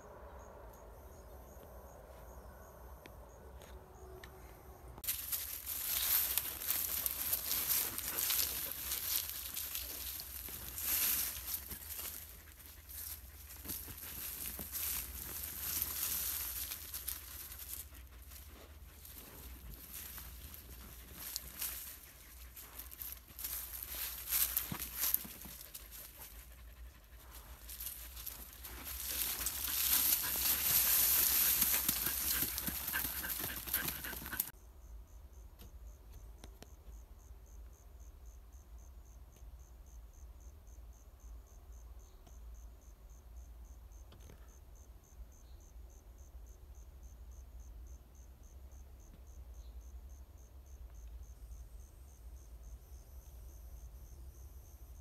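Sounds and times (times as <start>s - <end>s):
dogs digging in dry leaves: 5.0s - 26.4s, 27.2s - 34.5s
high insect chirps: 5.0s - 55.0s.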